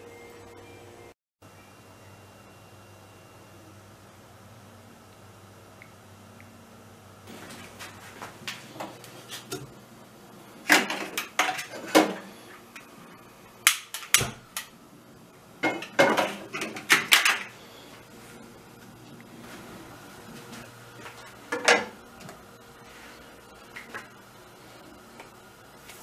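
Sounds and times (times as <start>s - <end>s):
frying pan clattering on metal grates: 15.6s - 17.5s.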